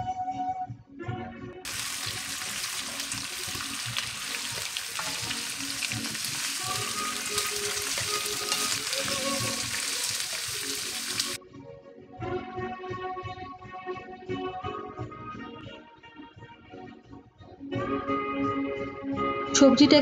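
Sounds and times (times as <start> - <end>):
vegetables sizzling in oil: 1.7 - 11.4
wooden spatula scraping: 1.7 - 11.4.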